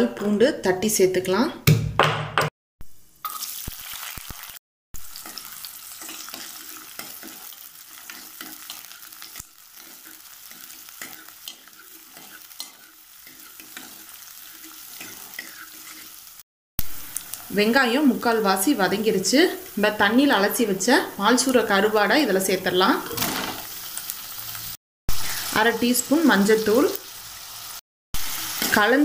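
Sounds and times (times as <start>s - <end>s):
shallots sizzling in hot oil: 2.8s - 29.0s
steel ladle scraping a pan: 5.2s - 16.2s.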